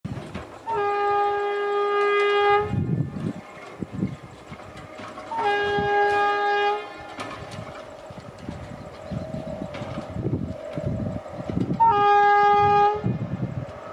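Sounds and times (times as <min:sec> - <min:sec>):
low rumble of approaching train: 0:00.1 - 0:13.9
locomotive air horn blasts: 0:00.6 - 0:03.0, 0:04.9 - 0:07.6, 0:11.8 - 0:13.2.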